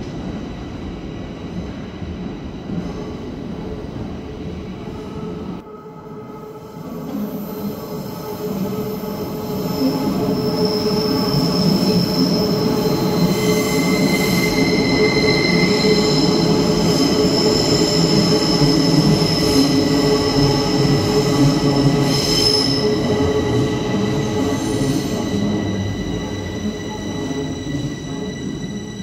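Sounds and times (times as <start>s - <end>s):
train wheels squealing: 6.6s - 29.0s.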